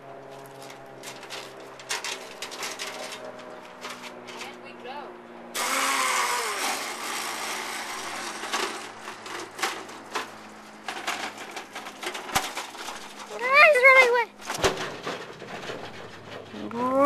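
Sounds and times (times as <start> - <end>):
wagon rattling over concrete: 0.6 - 4.7, 8.1 - 17.0
electric scooter motor whirring: 5.5 - 10.9.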